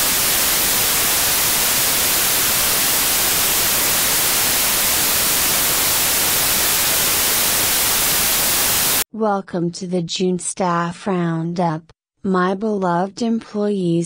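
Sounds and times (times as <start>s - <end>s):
analog static hiss: 0.0s - 9.0s.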